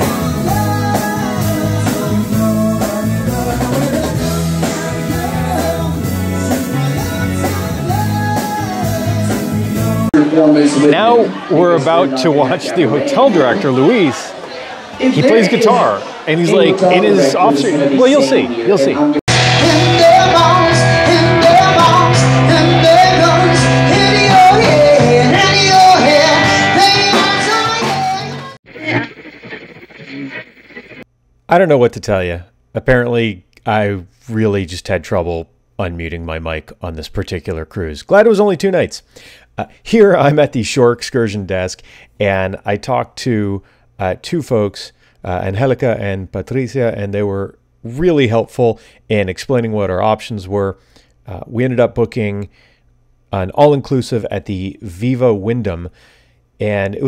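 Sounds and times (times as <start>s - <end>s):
drum kit: 0.0s - 10.2s, 19.3s - 31.0s
lead singer: 0.0s - 10.2s, 19.3s - 29.0s
electric guitar: 0.0s - 11.5s, 18.5s - 31.0s.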